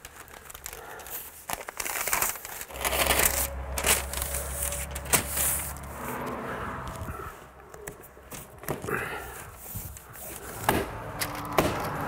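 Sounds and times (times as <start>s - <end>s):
sharp crackle: 0.0s - 7.0s
membrane crinkling and rustling: 0.0s - 12.0s.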